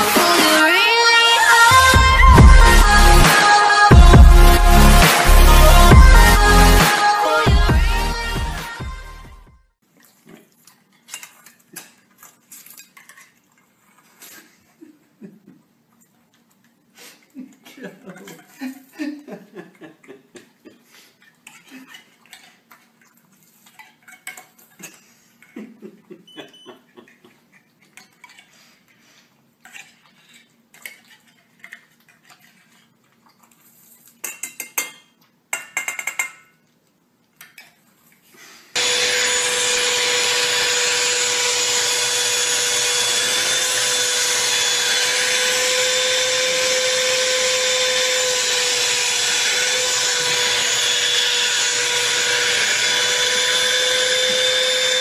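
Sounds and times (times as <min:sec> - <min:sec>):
spoon clinking against metal bowls: 0:34.2 - 0:36.6
vacuum cleaner running with a whine: 0:38.8 - 0:55.0.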